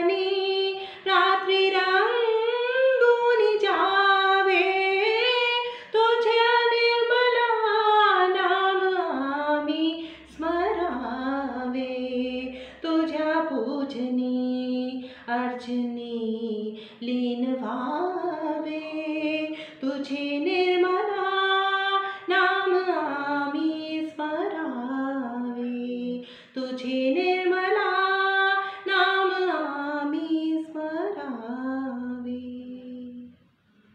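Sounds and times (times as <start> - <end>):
woman singing unaccompanied: 0.0 - 33.4.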